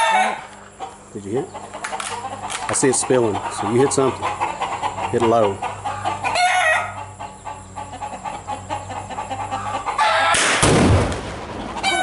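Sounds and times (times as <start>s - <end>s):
rifle shot: 10.3s - 11.5s
loud explosion blast: 10.4s - 11.6s.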